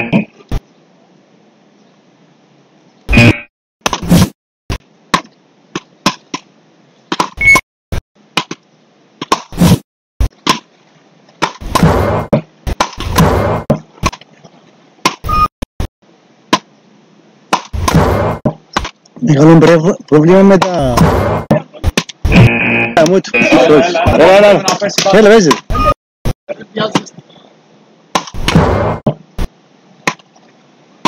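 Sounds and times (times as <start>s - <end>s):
paddles hitting ball: 5.1s - 6.5s.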